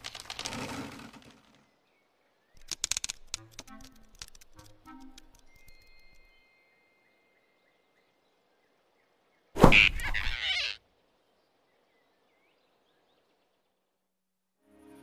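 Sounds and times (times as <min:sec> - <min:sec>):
sharp thump and swish: 0:09.6 - 0:10.1
flying squirrel squeak: 0:09.7 - 0:10.8.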